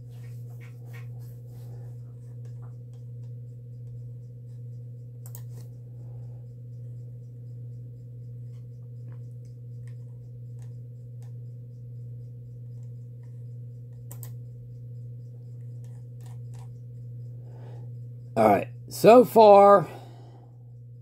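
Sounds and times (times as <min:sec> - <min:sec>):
steady low hum: 0:00.0 - 0:21.0
typing on a keyboard: 0:05.2 - 0:05.7, 0:12.7 - 0:14.4, 0:15.6 - 0:16.7.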